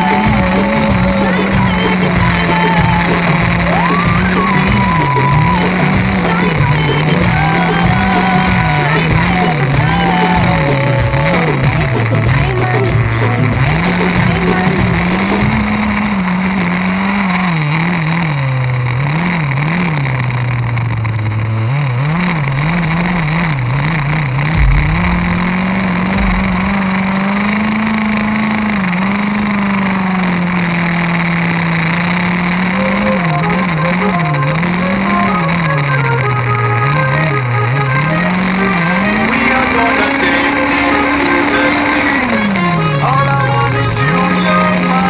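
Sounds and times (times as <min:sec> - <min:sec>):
model buggy engine revving: 0:00.0 - 0:45.0
low thump: 0:23.5 - 0:28.2.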